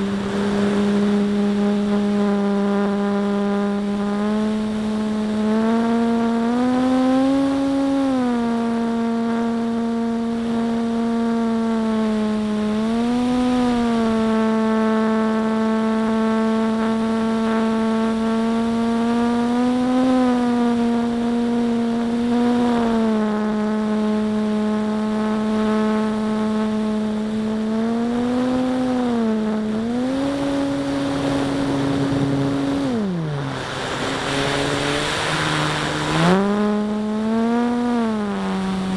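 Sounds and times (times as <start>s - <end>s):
rush of air: 0.0s - 2.2s, 30.8s - 36.7s
electric motor and propeller whine: 0.0s - 38.9s.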